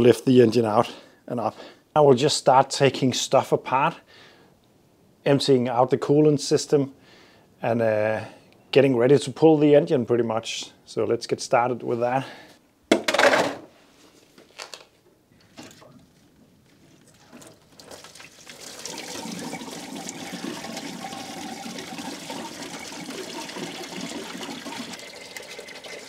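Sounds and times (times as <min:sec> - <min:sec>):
coolant pouring out: 0:17.3 - 0:26.0.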